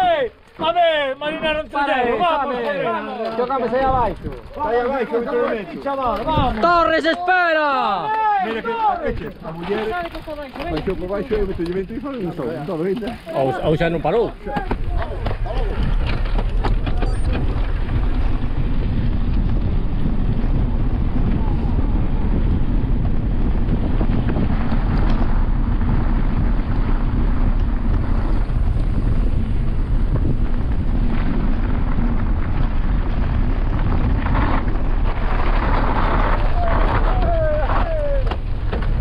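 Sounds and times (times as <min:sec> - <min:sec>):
bike rattling and clicking: 0:00.3 - 0:39.0
wind on camera microphone: 0:06.1 - 0:06.9, 0:13.4 - 0:39.0.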